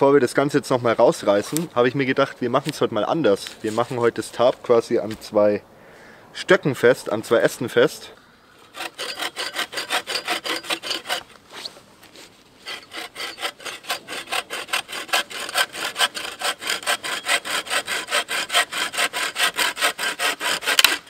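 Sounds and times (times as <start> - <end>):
saw cutting wooden branch: 8.6 - 21.0.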